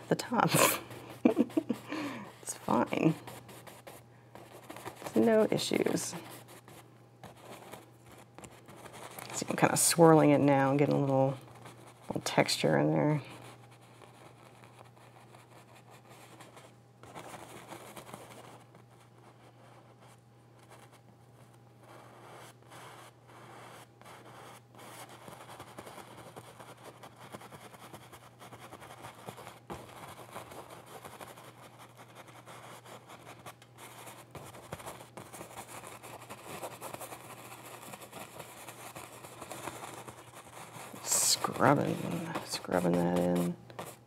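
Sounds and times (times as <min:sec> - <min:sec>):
low steady hum: 0:00.0 - 0:44.0
paintbrush scrubbing on canvas: 0:22.0 - 0:44.0.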